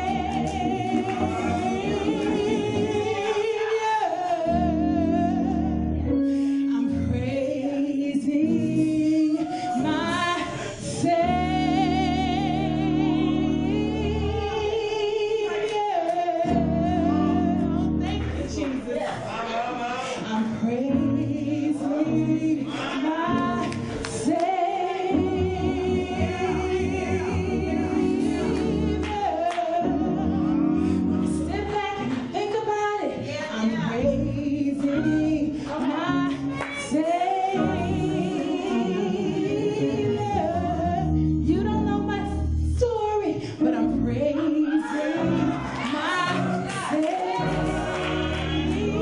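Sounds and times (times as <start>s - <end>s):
low bass notes: 0.0s - 3.3s, 9.8s - 14.8s, 16.5s - 18.6s, 25.2s - 31.9s
woman singing into microphone: 0.0s - 19.3s, 20.0s - 49.0s.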